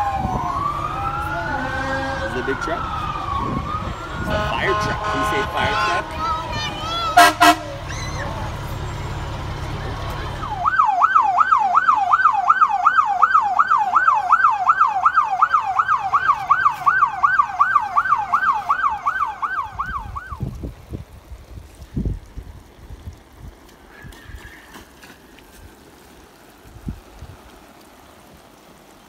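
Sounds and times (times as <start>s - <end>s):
emergency siren yelping: 0.0s - 6.4s, 10.4s - 20.6s
low engine rumble: 0.0s - 12.4s, 13.1s - 28.9s.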